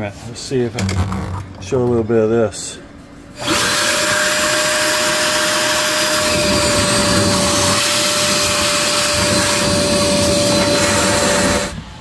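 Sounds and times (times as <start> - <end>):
vacuum running with whine: 3.4 - 12.0.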